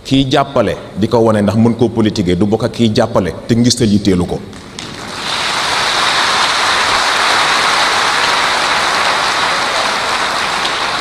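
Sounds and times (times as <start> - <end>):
large audience applauding: 4.6 - 11.0.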